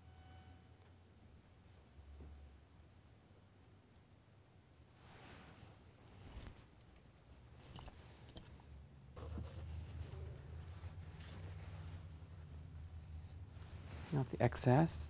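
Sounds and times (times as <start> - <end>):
makeup tools rustling and clinking: 7.6 - 8.4.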